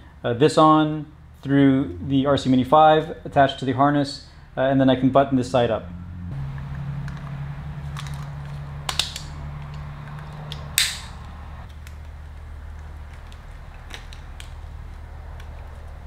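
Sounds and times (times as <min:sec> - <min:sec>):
steady low hum: 0:00.0 - 0:16.0
sharp plastic clicks: 0:07.9 - 0:12.1.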